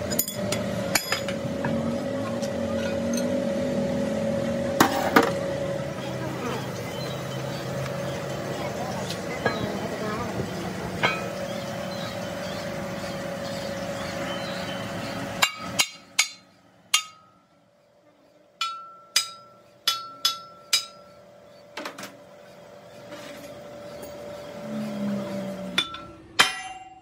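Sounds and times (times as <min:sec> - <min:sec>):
steady running noise: 0:00.0 - 0:26.9
hammer striking steel: 0:11.0 - 0:11.4, 0:15.4 - 0:17.4, 0:18.6 - 0:21.2, 0:25.8 - 0:27.0.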